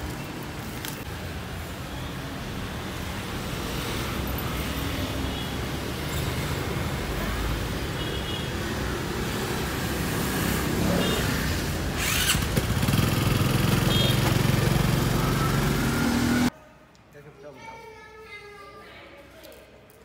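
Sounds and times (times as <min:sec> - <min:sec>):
street noise: 0:00.0 - 0:20.0
small motorbike engine: 0:10.0 - 0:16.5.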